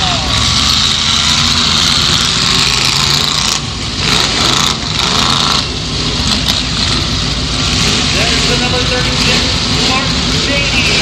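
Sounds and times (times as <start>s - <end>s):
car engine running hard: 0.0s - 11.0s.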